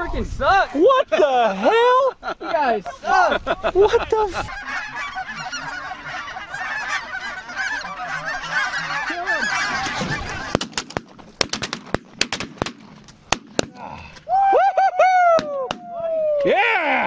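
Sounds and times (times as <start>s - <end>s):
geese honking: 3.8s - 11.5s
shotgun shots: 10.4s - 13.7s.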